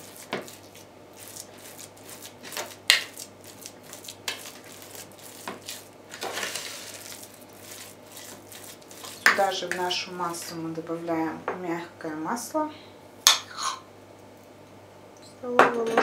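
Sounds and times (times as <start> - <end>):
spoon scraping plastic bowl: 3.9 - 9.9.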